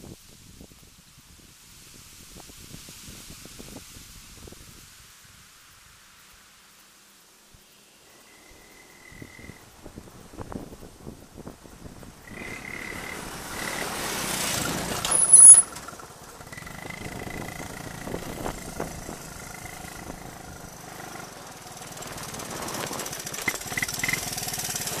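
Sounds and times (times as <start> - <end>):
engine passing by: 12.2 - 25.0.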